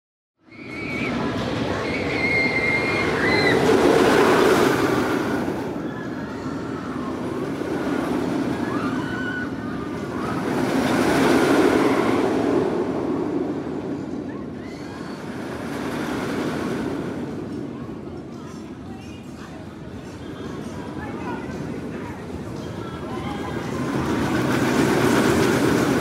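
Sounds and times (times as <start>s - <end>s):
high squeals of coaster wheels: 0.4s - 19.4s
roller coaster rumbling on track: 0.5s - 26.0s.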